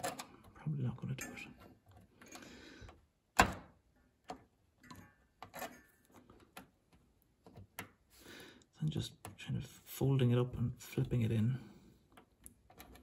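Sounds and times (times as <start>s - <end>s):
screwdriver clicking and scraping: 12.1s - 13.0s.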